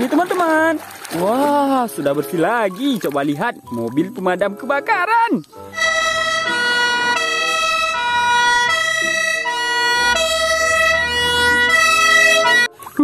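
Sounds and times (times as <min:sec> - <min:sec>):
fire engine two-tone siren: 0:05.7 - 0:12.8.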